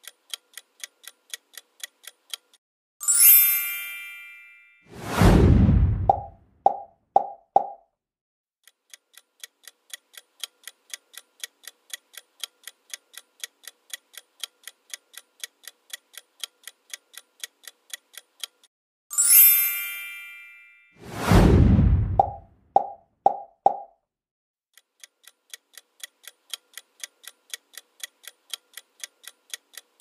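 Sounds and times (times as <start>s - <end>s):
bright chime: 3.0s - 4.8s, 19.1s - 21.0s
loud whoosh: 4.9s - 6.4s, 21.0s - 22.4s
countdown timer ticking: 22.0s - 23.9s.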